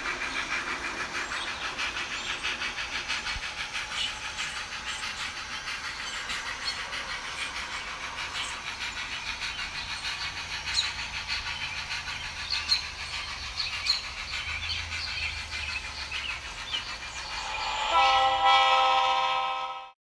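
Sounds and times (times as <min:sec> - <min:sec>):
model train wheels clicking: 0:00.0 - 0:19.8
model train running noise: 0:00.0 - 0:20.0
held chord of steady tones: 0:17.3 - 0:19.8.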